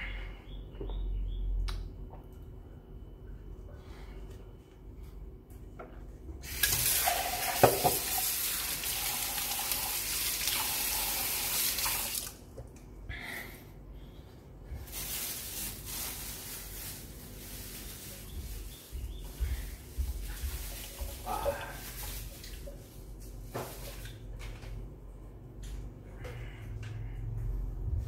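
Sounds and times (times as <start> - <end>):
tap water running into sink: 6.4 - 12.4.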